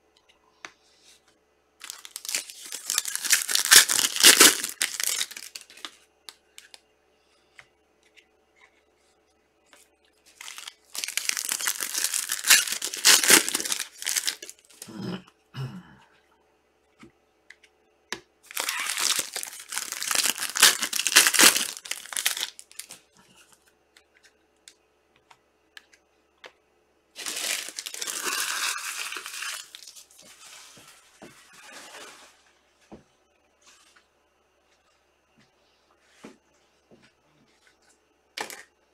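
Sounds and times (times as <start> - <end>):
packaging crinkling and tearing: 1.8 - 6.0, 10.3 - 14.8, 18.5 - 23.0, 27.2 - 30.8.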